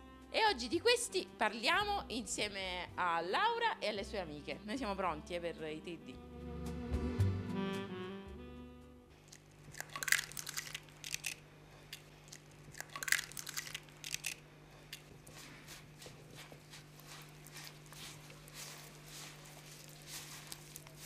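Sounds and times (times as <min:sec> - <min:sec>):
eggs cracking: 0:09.2 - 0:21.0
fingers scraping and rubbing dough: 0:12.8 - 0:21.0.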